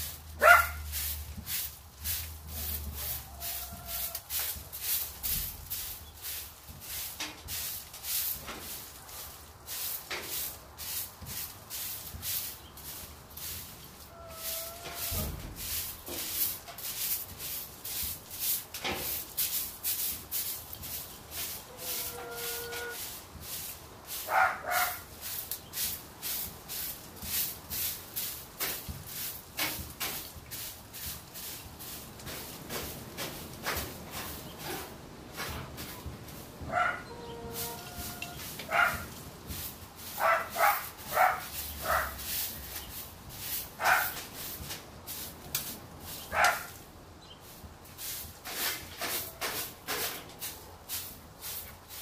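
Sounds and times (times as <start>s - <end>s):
broom sweeping dirt floor: 0.0s - 52.0s
hen calling: 2.9s - 4.5s, 14.0s - 15.4s, 21.4s - 23.1s, 36.7s - 38.9s.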